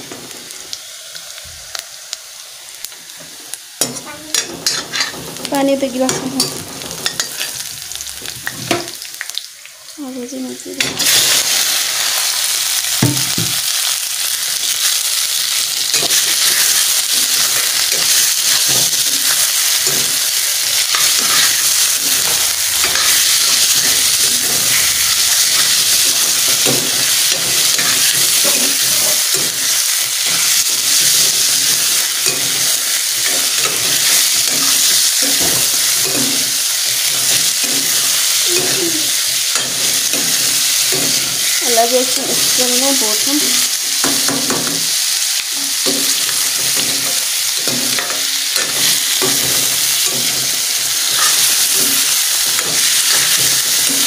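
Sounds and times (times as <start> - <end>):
chicken sizzling in hot oil: 0.0 - 54.0.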